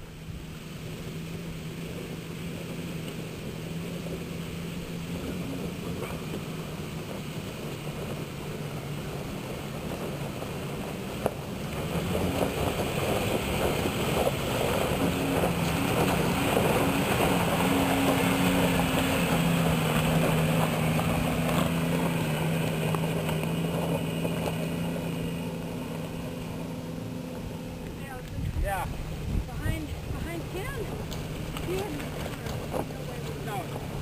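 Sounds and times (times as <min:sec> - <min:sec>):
engine pulling up a hill: 0:00.0 - 0:34.0
tyres crunching on gravel: 0:07.9 - 0:34.0.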